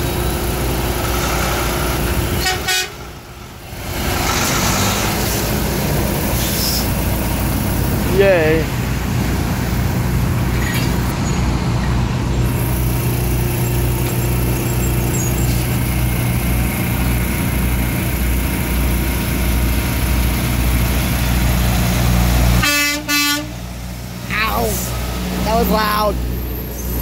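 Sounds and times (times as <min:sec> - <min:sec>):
diesel truck engine running: 0:00.0 - 0:27.0
truck horn blast: 0:02.3 - 0:03.2, 0:22.6 - 0:23.6.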